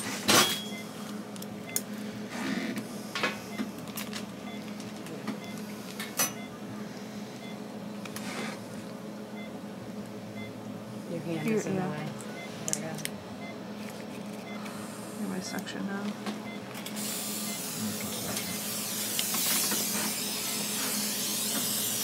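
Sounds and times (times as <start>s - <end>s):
dental motor humming: 17.0s - 22.0s.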